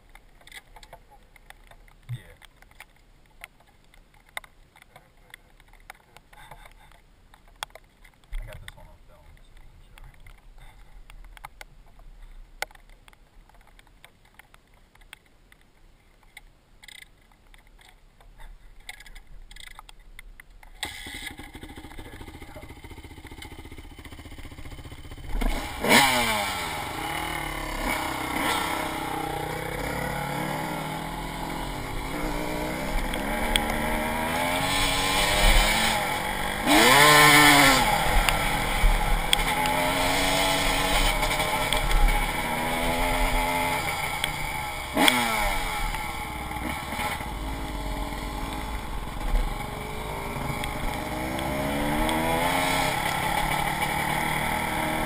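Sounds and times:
dirt bike engine revving: 20.8 - 55.0.

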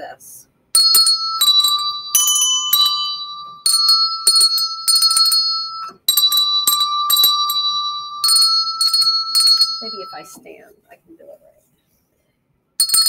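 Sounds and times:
handbells ringing: 0.8 - 10.4, 12.8 - 13.0.

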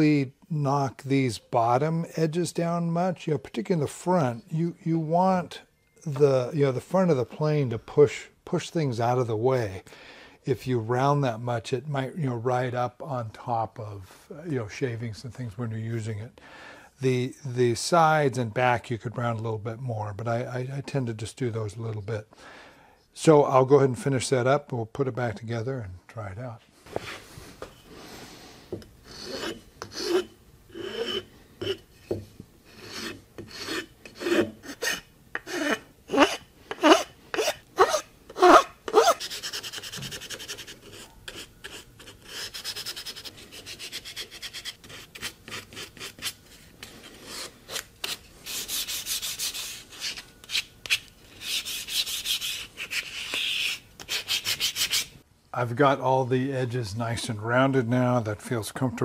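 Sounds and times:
filing and sanding wood: 29.0 - 31.8, 32.7 - 55.2
scratchy rubbing: 29.0 - 32.0, 32.7 - 55.2.

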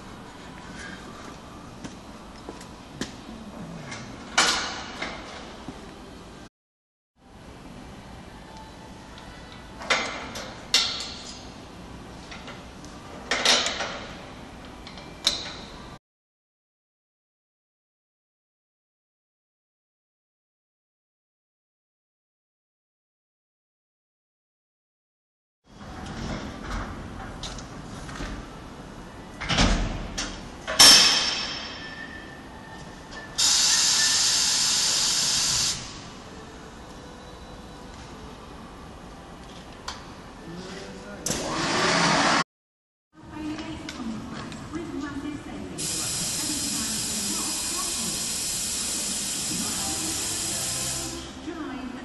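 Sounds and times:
workshop hum: 0.0 - 6.5, 7.2 - 16.0, 25.7 - 42.5, 43.2 - 51.8
loud metal clang: 30.7 - 32.1
steady hiss: 45.8 - 51.2.

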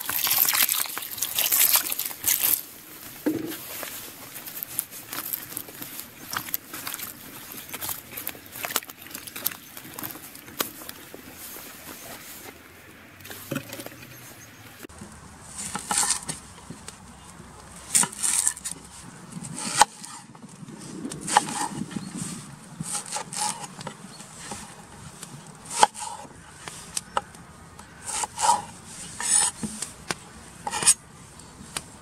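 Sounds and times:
onion skin rustling: 0.0 - 12.5
vegetables moved in water: 0.0 - 12.6.

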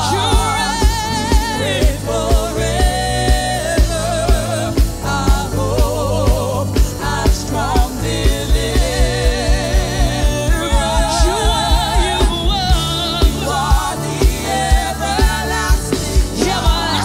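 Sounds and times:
backing singers: 0.0 - 17.0
band with bass: 0.0 - 17.0
woman singing with vibrato: 0.0 - 17.0
kick drum beat: 6.3 - 15.5.

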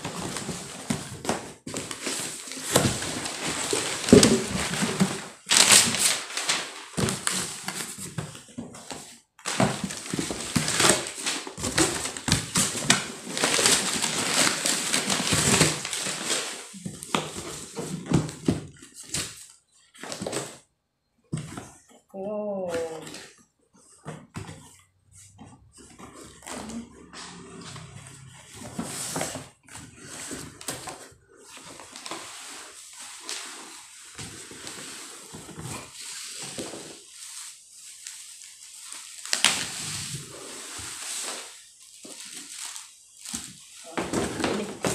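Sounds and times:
cardboard flaps scraping and knocking: 0.0 - 19.4
paper wrapping crinkling: 0.0 - 20.6, 28.5 - 44.9.

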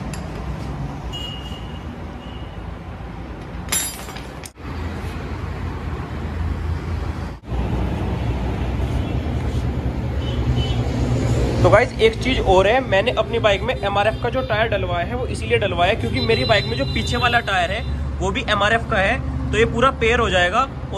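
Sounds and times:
spanner clinking: 3.4 - 4.6.

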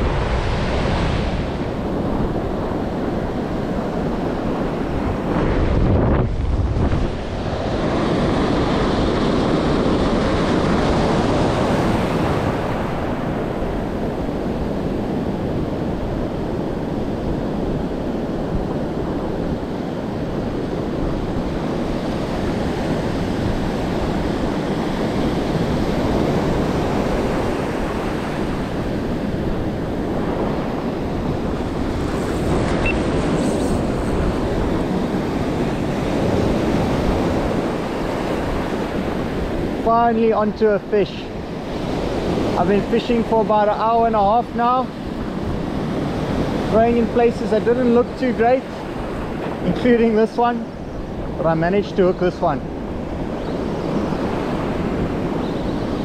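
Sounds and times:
surf washing over sand: 0.0 - 56.0
wind buffeting microphone: 0.0 - 56.0.

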